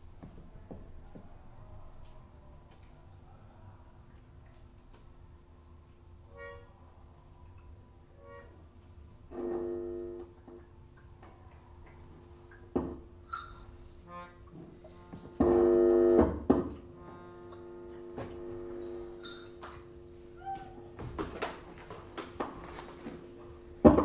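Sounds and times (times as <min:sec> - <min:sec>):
loud held instrumental chord: 0:14.1 - 0:20.4
faint held tone: 0:17.4 - 0:20.9.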